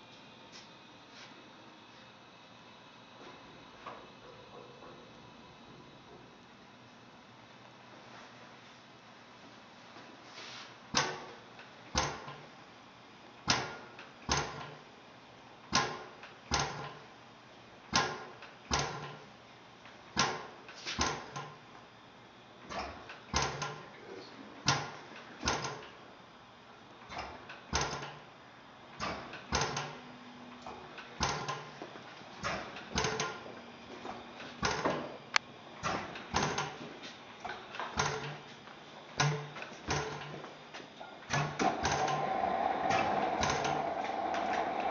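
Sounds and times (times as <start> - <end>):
engine compressor knocking: 41.4 - 44.9.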